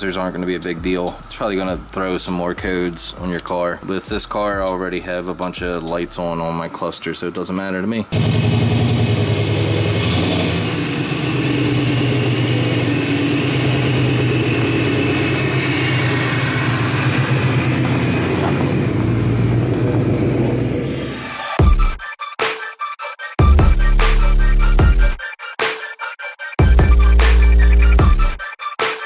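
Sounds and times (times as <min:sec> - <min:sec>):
music with a beat: 0:00.2 - 0:04.9, 0:21.4 - 0:29.0
car engine running: 0:08.1 - 0:21.2.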